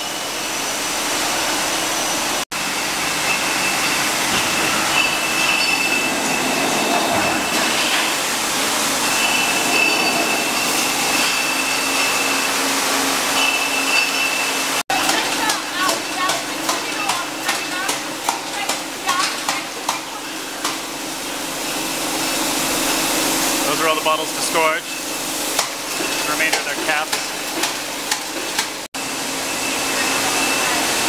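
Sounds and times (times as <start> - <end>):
high mechanical whine: 0.0 - 14.8
machinery running: 0.0 - 27.7, 29.0 - 31.0.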